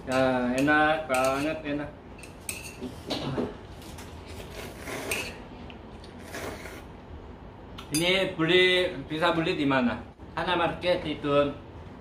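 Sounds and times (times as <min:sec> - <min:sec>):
chopsticks scraping a dish: 0:04.3 - 0:05.4
person slurping noodles: 0:04.3 - 0:05.4, 0:06.0 - 0:07.0.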